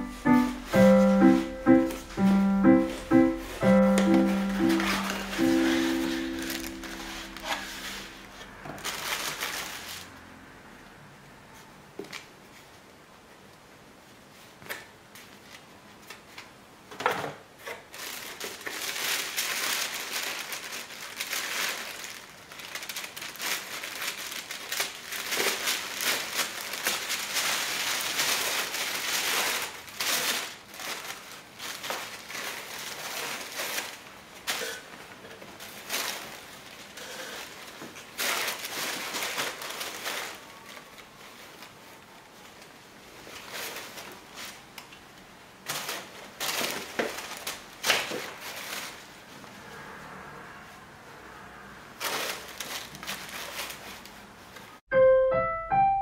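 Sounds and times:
tissue paper rustling: 0.0s - 10.1s, 17.9s - 44.7s, 45.6s - 49.3s, 52.0s - 54.2s.

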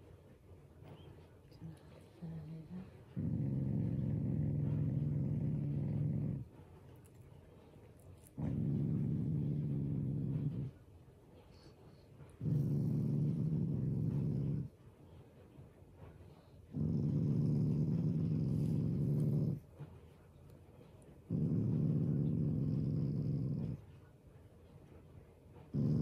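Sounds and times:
dog growling low: 1.8s - 6.6s, 8.2s - 10.8s, 12.3s - 14.7s, 16.7s - 19.7s, 21.2s - 23.9s, 25.6s - 26.0s.

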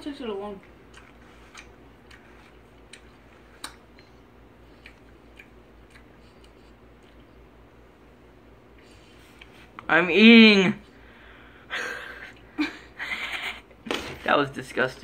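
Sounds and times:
person chewing apple: 0.6s - 7.8s.

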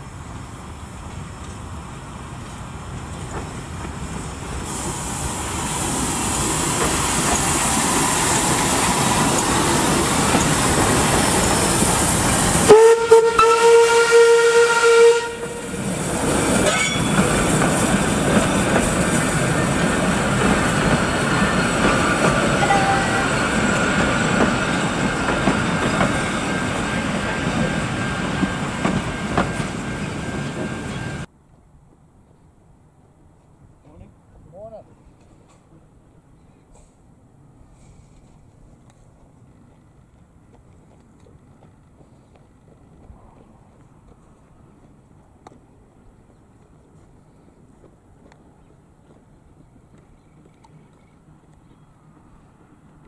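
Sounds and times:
steam locomotive passing: 0.0s - 31.3s, 32.7s - 53.0s
carriages rumbling past: 5.2s - 31.3s
steam whistle blast: 12.6s - 15.8s.

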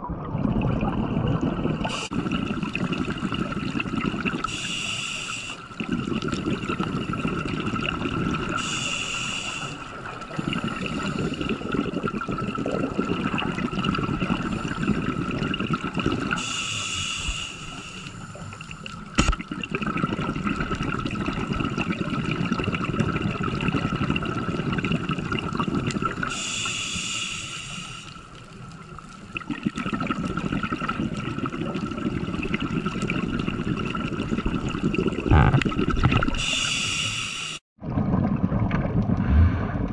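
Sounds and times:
exhaled bubbles rumbling: 0.0s - 4.6s, 5.7s - 8.8s, 9.8s - 16.4s, 18.2s - 26.4s, 28.6s - 36.9s, 37.8s - 39.9s
regulator inhale hiss: 4.5s - 5.6s, 8.6s - 9.8s, 10.5s - 11.6s, 16.4s - 19.0s, 26.3s - 28.2s, 36.4s - 37.6s.

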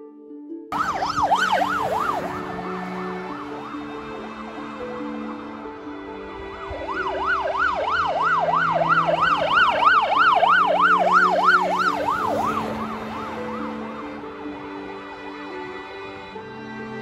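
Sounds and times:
police siren yelp: 0.7s - 5.5s, 6.6s - 14.5s.

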